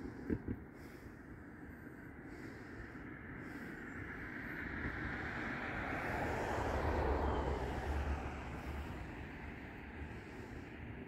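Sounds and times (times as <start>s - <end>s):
vehicle passing by: 4.1s - 11.0s.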